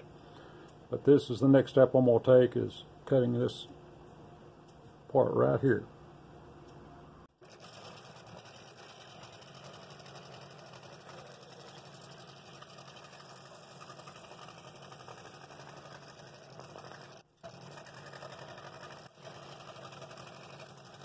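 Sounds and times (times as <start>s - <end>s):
scroll saw cutting wood: 7.4s - 21.0s.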